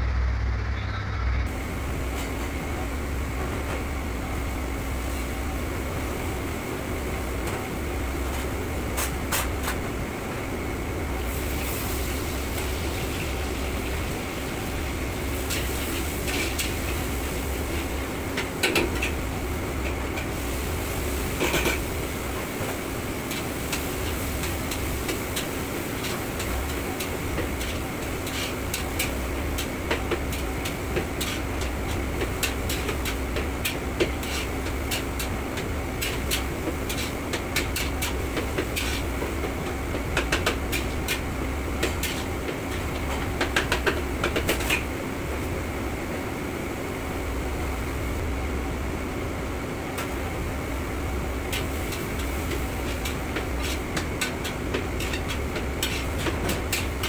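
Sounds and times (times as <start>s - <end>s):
low hum: 0.0s - 2.0s
exhaust fan: 0.0s - 57.0s
gas burner rushing: 0.0s - 57.0s.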